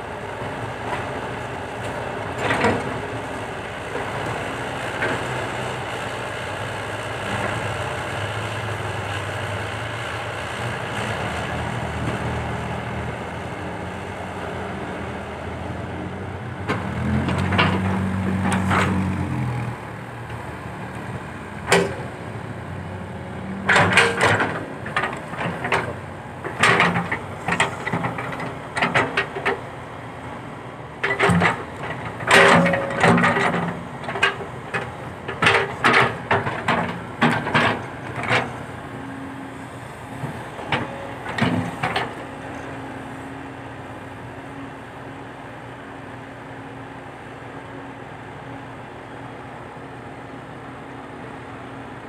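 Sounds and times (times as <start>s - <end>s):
excavator engine hum: 0.0s - 52.0s
excavator clanks and knocks: 1.8s - 5.4s, 16.6s - 19.2s, 20.3s - 22.2s, 23.6s - 29.8s, 31.0s - 42.9s.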